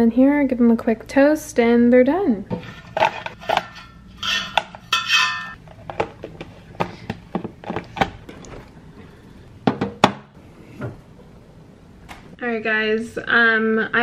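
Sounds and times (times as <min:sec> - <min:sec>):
potato wedges scraping and sliding: 0:02.5 - 0:05.5.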